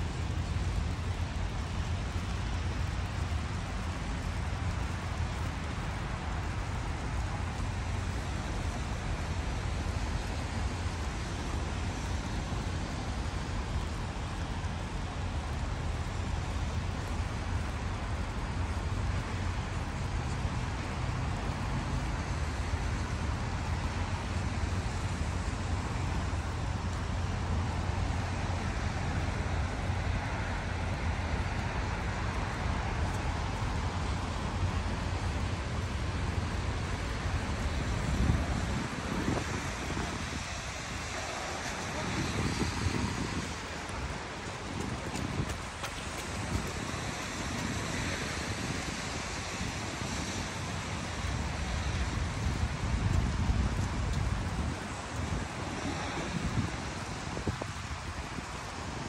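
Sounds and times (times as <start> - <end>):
wind: 0.0 - 59.0
distant road traffic: 19.7 - 58.8.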